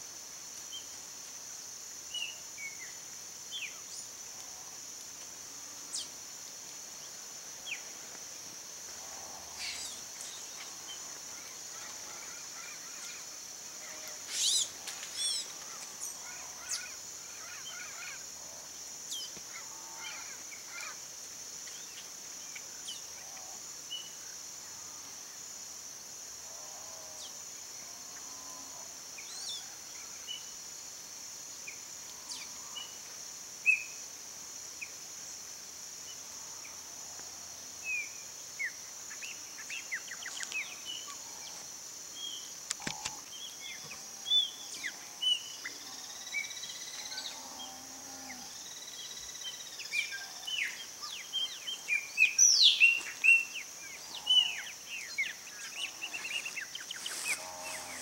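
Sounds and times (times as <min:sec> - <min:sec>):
high-pitched insect drone: 0:37.9 - 0:58.0.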